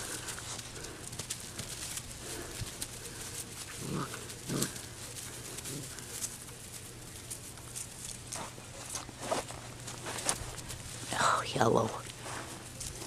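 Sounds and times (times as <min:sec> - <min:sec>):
puppies making low vocal sounds: 0:00.0 - 0:09.0
light clicking and rustling: 0:00.0 - 0:10.9.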